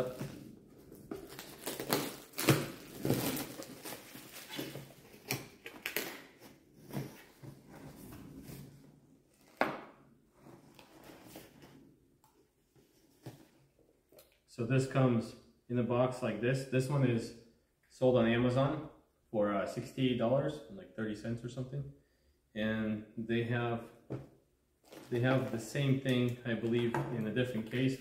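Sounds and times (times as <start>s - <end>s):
cardboard rustling and scraping: 0.0s - 9.6s, 10.3s - 11.8s.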